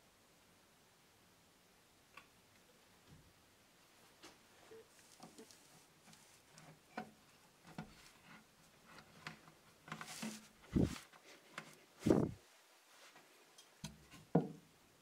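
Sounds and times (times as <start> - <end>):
light clicks and knocks: 5.0 - 11.8.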